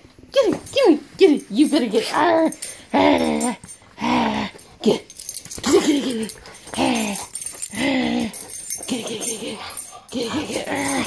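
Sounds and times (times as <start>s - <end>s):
dog growling and whining: 2.9s - 4.7s, 5.6s - 11.0s.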